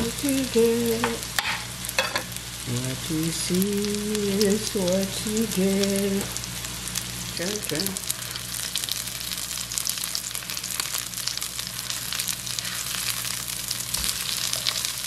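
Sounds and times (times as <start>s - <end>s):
patties sizzling in oil: 0.0s - 15.0s
spatula scraping pan: 11.8s - 13.4s.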